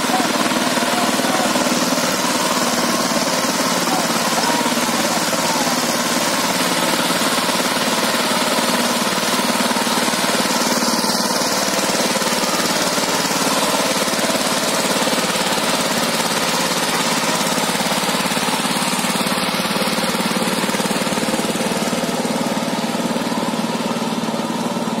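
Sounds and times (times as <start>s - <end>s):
diesel engine running under load: 0.0s - 25.0s.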